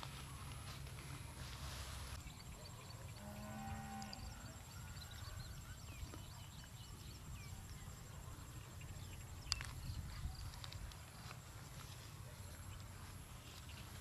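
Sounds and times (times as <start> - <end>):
wind rumble on microphone: 4.0 - 14.0.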